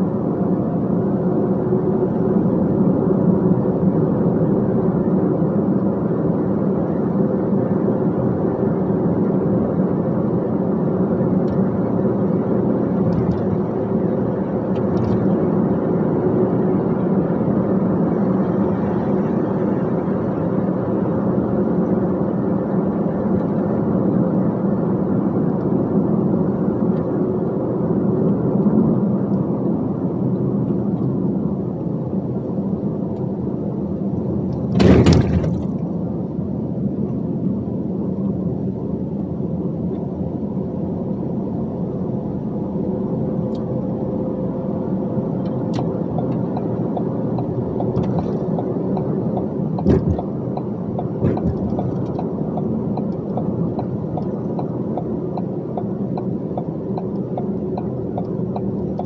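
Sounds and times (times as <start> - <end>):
loud clattering thump: 34.6 - 35.8, 49.8 - 50.2
dump truck engine driving: 34.6 - 35.9.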